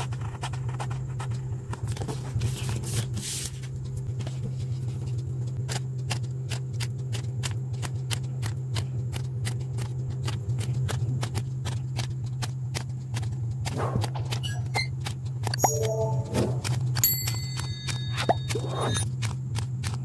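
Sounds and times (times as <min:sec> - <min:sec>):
steady low hum: 0:00.0 - 0:14.4
scissors snipping paper: 0:05.7 - 0:15.6, 0:16.6 - 0:20.0.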